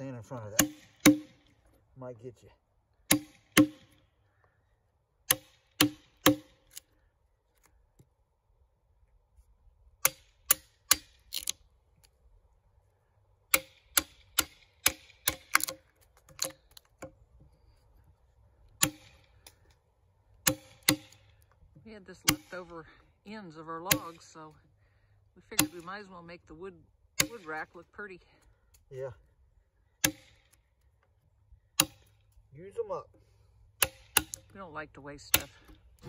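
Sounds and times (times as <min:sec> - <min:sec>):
hammer striking chisel: 0:00.6 - 0:01.4, 0:03.1 - 0:04.0, 0:30.0 - 0:30.4, 0:31.8 - 0:32.1.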